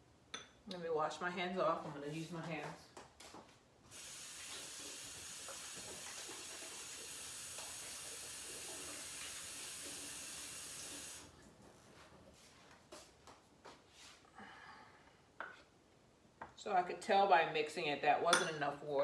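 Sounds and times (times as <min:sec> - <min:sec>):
tap running over washing hands: 0:03.2 - 0:11.2.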